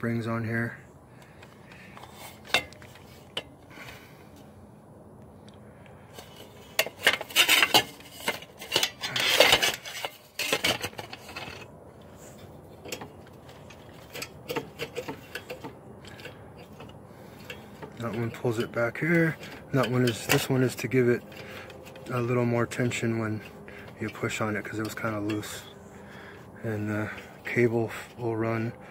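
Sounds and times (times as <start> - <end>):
metal parts clicking and clinking: 6.1 - 25.7
rasping metal scrapes: 6.1 - 28.2.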